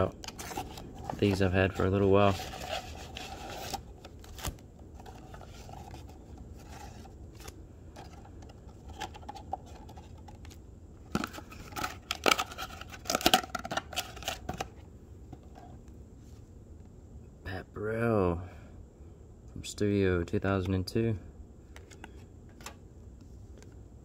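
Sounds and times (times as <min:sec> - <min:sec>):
cardboard tearing and scraping: 0:00.0 - 0:08.2
cardboard box rustling: 0:00.0 - 0:14.8.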